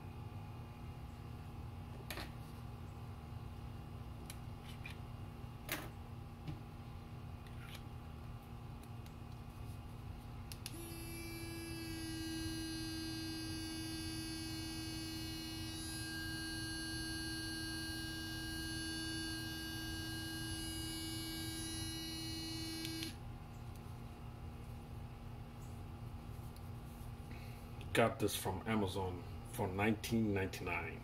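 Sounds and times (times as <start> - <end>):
electric toothbrush buzzing: 10.6 - 23.2.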